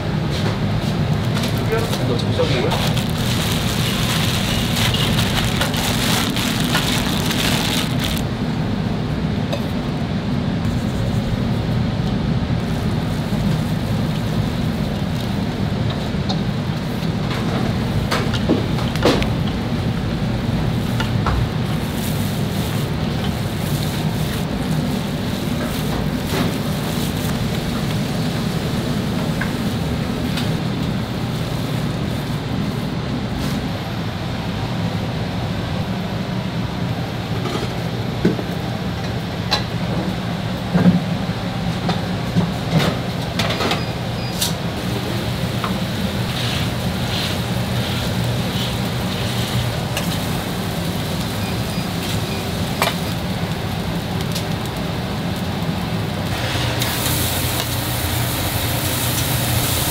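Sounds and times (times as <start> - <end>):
food sizzling: 2.7 - 8.2, 45.8 - 59.9.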